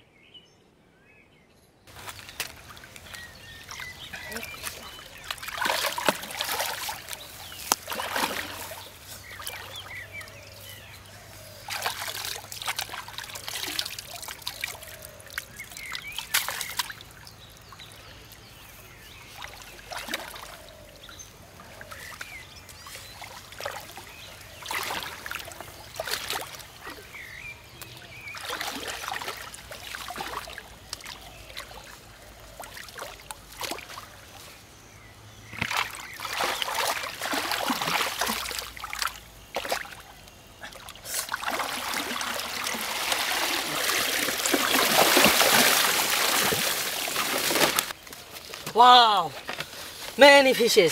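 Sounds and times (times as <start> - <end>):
hands splashing in muddy water: 1.9 - 17.7, 21.9 - 32.0, 35.5 - 48.8
water sloshing and trickling: 1.9 - 50.9.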